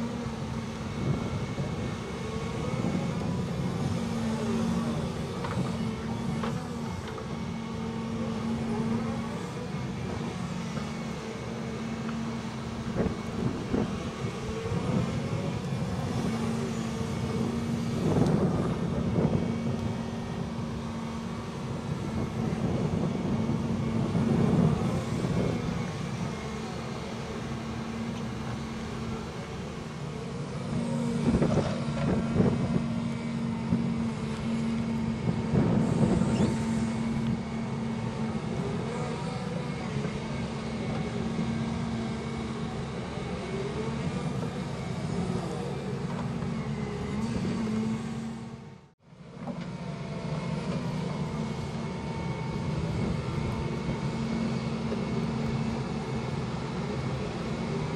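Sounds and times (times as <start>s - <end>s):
excavator diesel engine: 0.0s - 57.9s.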